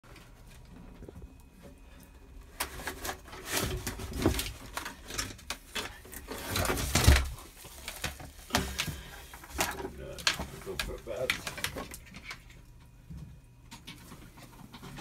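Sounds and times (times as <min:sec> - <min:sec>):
lizard scraping and rustling: 0:00.1 - 0:12.6.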